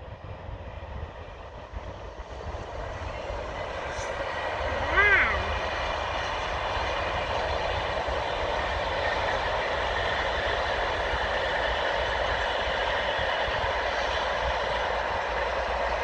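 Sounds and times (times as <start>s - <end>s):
distant diesel locomotive engine: 0.0s - 16.0s.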